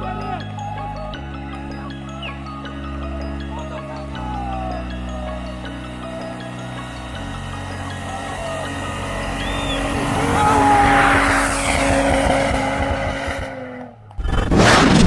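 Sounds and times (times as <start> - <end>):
engine revving: 3.2 - 15.0.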